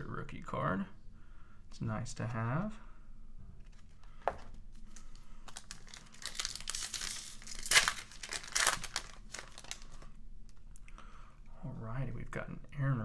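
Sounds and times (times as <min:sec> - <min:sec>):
foil wrapper crinkling and tearing: 0:04.8 - 0:10.2.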